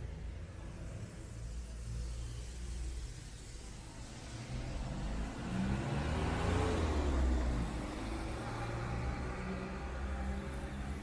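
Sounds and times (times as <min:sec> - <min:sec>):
low traffic rumble: 0:00.0 - 0:11.0
vehicle engine passing by: 0:04.2 - 0:11.0.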